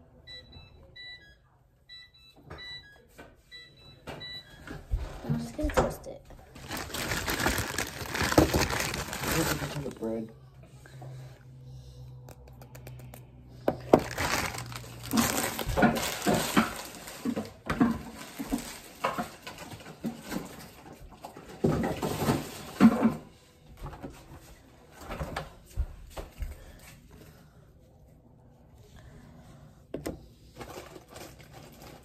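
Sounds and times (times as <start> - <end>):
food rustling and scraping: 6.4 - 10.1, 12.4 - 23.3, 30.2 - 32.0.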